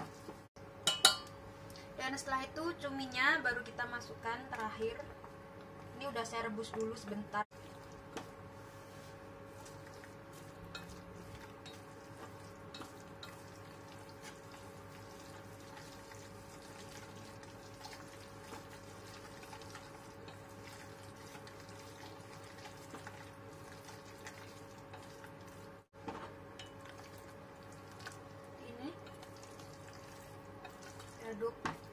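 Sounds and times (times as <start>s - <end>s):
food sizzling in a saucepan: 7.5s - 25.9s, 26.5s - 31.9s
chopsticks stirring: 7.6s - 31.9s.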